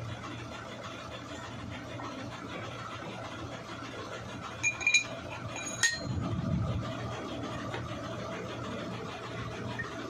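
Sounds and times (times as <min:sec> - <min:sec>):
metal gears clinking: 0:04.6 - 0:06.2.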